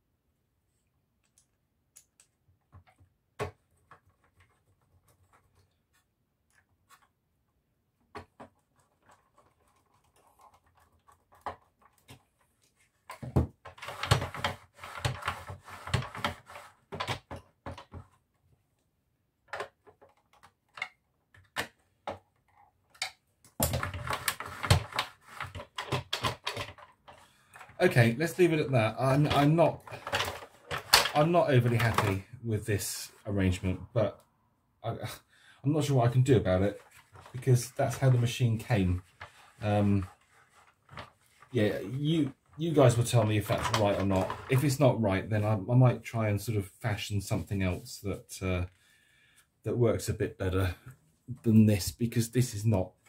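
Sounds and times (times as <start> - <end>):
plastic parts clicking and knocking: 1.2 - 7.2, 8.0 - 18.6, 19.4 - 32.4, 36.2 - 44.8
plastic rattling and scraping: 2.6 - 7.2, 8.0 - 18.6, 19.4 - 34.2, 35.8 - 44.9.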